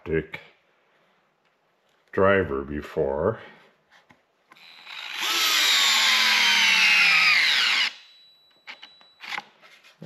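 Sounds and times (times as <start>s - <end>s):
cordless screwdriver whine: 4.5s - 9.5s.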